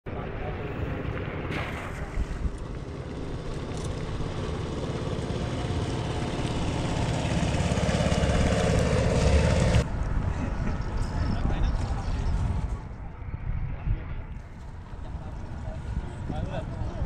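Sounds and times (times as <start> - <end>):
small boat engine running: 0.2 - 9.8
wind on microphone: 0.7 - 4.3, 8.3 - 17.0.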